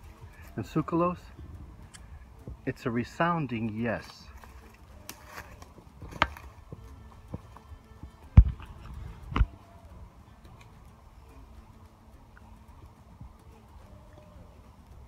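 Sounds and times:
footsteps on dry forest floor: 3.5 - 9.5.

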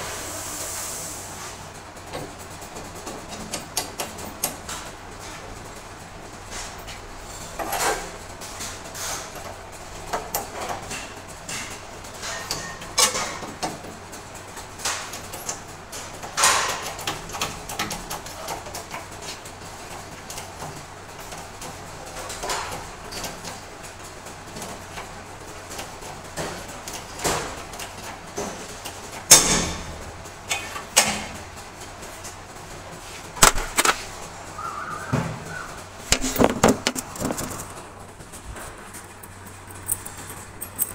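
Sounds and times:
metallic clicks and clanks: 7.6 - 23.6, 38.9 - 40.9.

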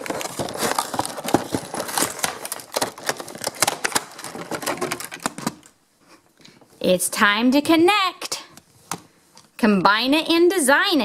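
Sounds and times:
plastic packaging crinkling: 0.0 - 5.8.

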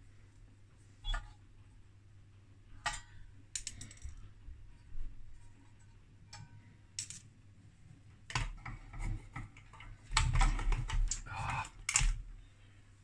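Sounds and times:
metallic clicks and taps of screws: 2.8 - 4.2.

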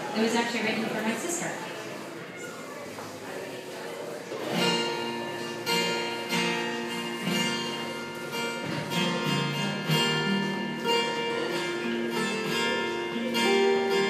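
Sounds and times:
acoustic guitars strumming: 4.3 - 14.0.

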